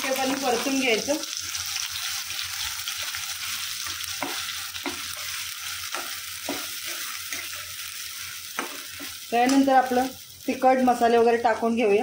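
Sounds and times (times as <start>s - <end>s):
paste sizzling in hot oil: 0.0s - 11.2s
spatula scraping pan: 1.6s - 9.6s.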